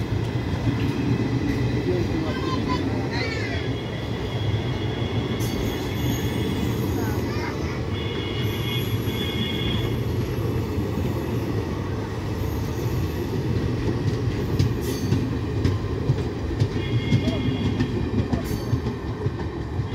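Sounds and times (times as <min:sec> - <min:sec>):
train wheels rumbling on rails: 0:00.0 - 0:19.9
high wheel squeal: 0:04.4 - 0:07.2.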